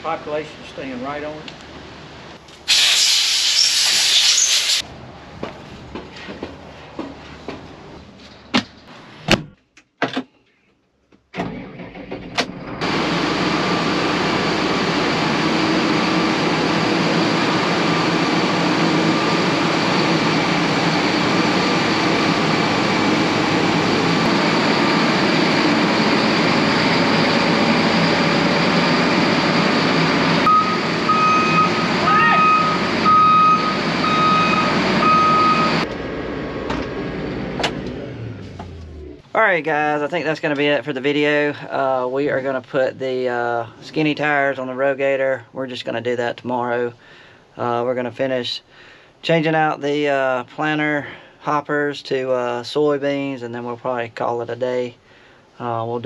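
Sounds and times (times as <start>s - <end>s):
loud hiss: 2.6s - 4.8s
diesel engine running: 11.4s - 39.3s
backup alarm beeping: 13.8s - 35.9s.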